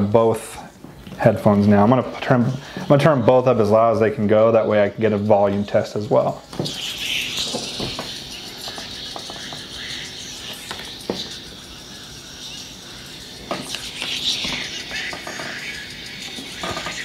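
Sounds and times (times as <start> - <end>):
thin song from helmet speakers: 5.3 - 17.0.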